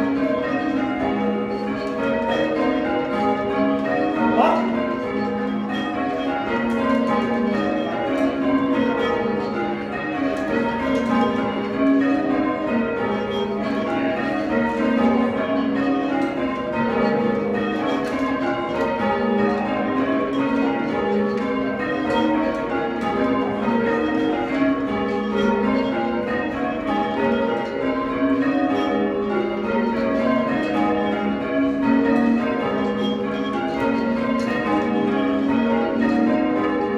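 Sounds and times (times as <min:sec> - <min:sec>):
church bells change ringing: 0:00.0 - 0:36.9.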